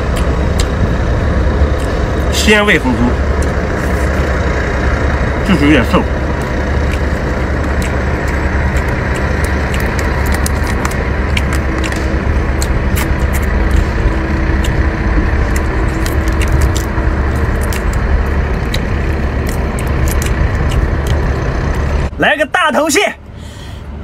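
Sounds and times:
chewing: 0.0 - 1.0, 1.6 - 2.3, 3.2 - 22.0
low steady rumble: 0.0 - 24.0
shellfish shell cracking: 6.3 - 21.2.

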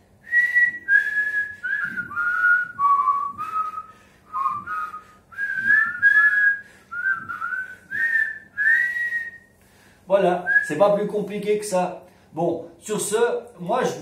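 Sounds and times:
man whistling a slow melody: 0.2 - 9.5, 10.5 - 10.7.

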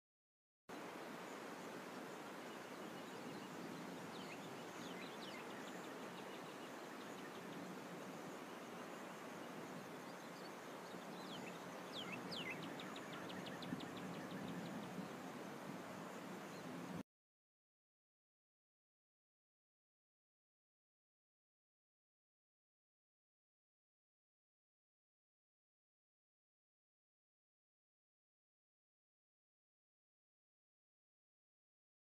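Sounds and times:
faint background hiss: 0.7 - 17.0
bird chirps: 8.3 - 15.2.

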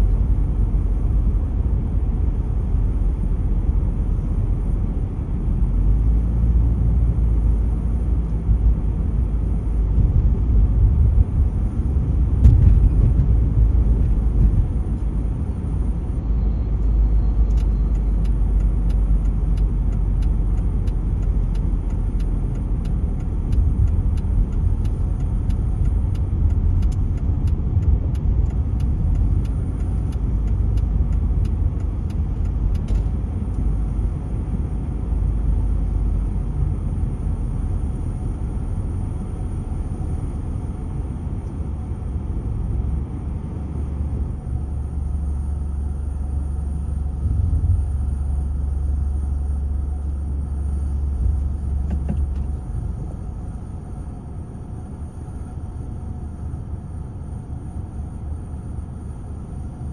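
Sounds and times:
car cabin road rumble: 0.0 - 59.9
faint regular clicks: 17.4 - 33.6.

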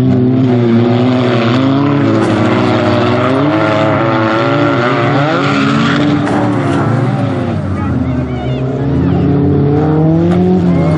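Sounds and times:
race car engines revving: 0.0 - 10.9.

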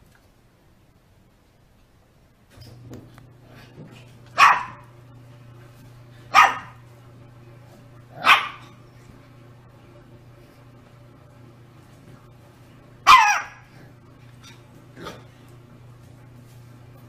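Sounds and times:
puppy barking: 4.4 - 4.9, 6.3 - 6.8, 8.1 - 8.8, 13.0 - 13.8.

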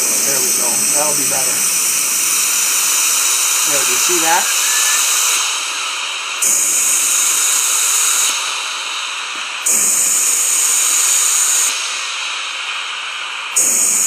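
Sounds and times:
air blown into trachea: 0.0 - 7.4.

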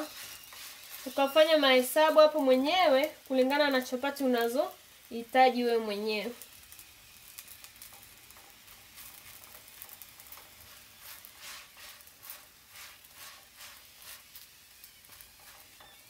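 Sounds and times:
metal spoon scraping a pan: 0.0 - 2.5, 6.7 - 14.4, 15.1 - 16.0
batter frying in a pan: 0.0 - 16.0.

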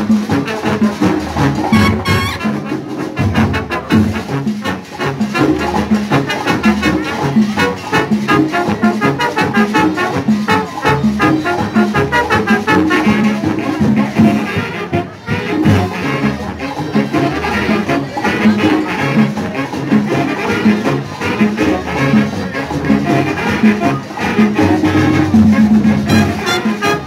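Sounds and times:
steady drum beat: 0.0 - 15.8, 16.9 - 27.0
trumpets and trombones: 0.0 - 27.0.

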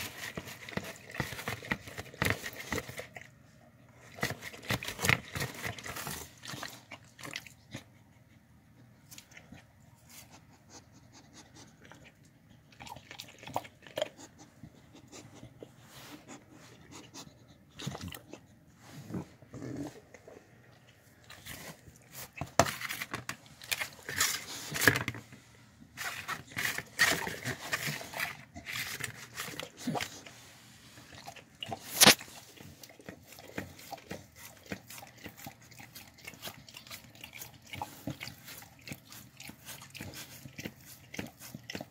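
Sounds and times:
dog sniffing licking and chewing: 4.0 - 19.2, 26.0 - 41.9.

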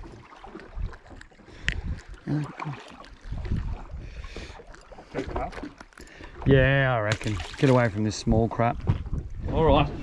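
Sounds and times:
water slapping boat hull: 0.0 - 10.0
wind on microphone: 3.2 - 4.6, 8.2 - 10.0.

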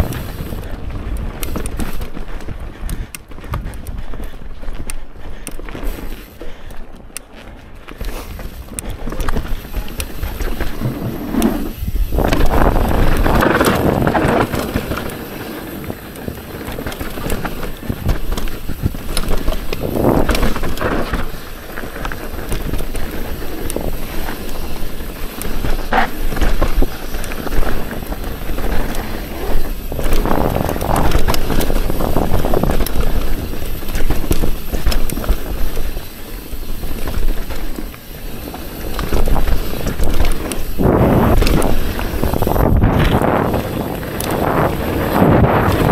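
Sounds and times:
bike tyres chattering over dirt: 0.0 - 45.9
wind buffeting microphone: 8.4 - 35.9, 38.9 - 45.9.

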